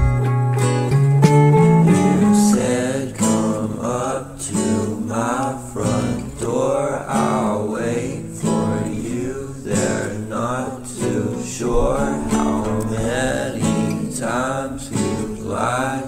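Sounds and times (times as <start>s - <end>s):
song with strummed acoustic guitar: 0.0s - 16.0s.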